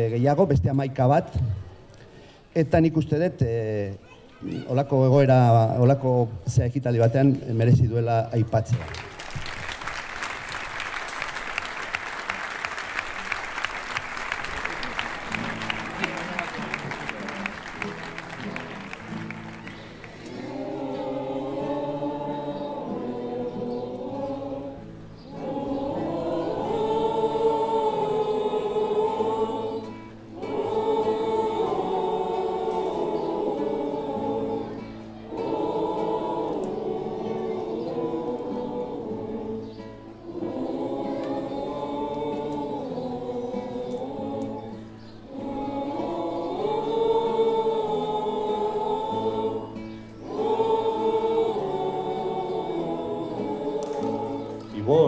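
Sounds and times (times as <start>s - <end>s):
crowd singing in unison: 9.6s - 55.0s
guitar: 14.0s - 55.0s.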